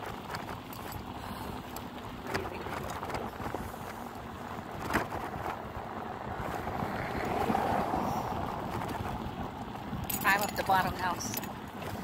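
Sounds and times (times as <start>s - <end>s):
bicycle tyre noise: 0.0s - 10.1s
wind noise on microphone: 2.3s - 11.1s.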